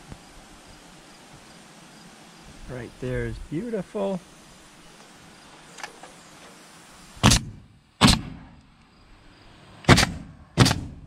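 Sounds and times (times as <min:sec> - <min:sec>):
nail gun firing into wood: 0:07.2 - 0:08.6, 0:09.9 - 0:11.0.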